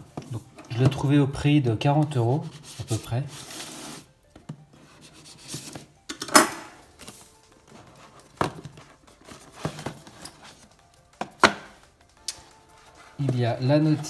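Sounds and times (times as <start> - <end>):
cardboard packaging rustling: 2.0 - 6.0, 6.8 - 14.0.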